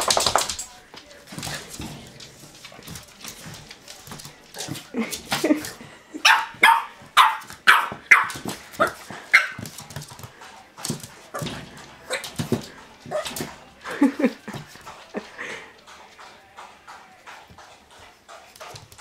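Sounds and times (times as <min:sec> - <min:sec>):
dog barking: 0:06.2 - 0:09.6.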